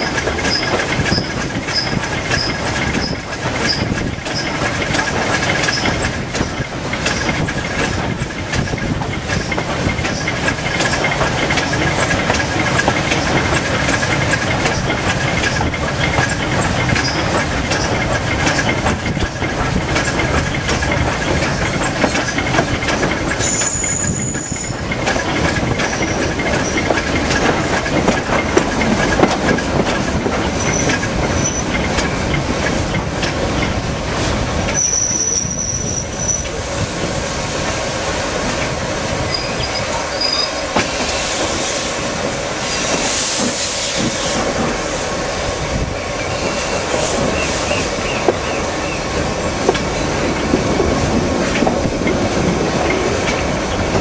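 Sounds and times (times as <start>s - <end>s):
clickety-clack over rail joints: 0.0s - 54.0s
train wheels rumbling on rails: 0.0s - 54.0s
steam hissing: 19.7s - 53.8s.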